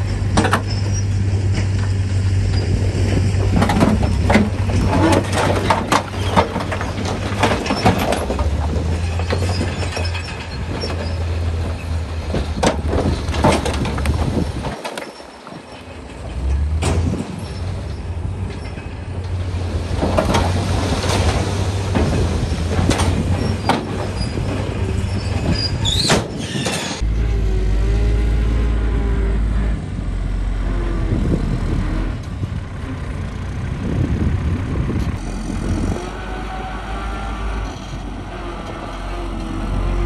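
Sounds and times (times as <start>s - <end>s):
diesel machinery engine drone: 0.0s - 14.8s, 15.5s - 40.0s.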